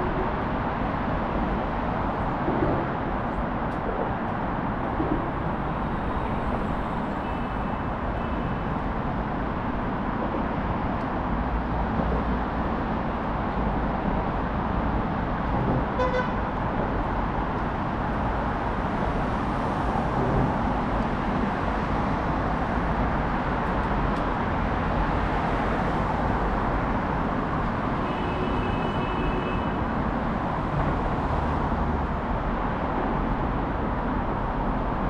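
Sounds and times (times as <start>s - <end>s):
road traffic noise: 0.0s - 35.0s
vehicle horn toot: 16.0s - 16.4s, 28.0s - 29.8s.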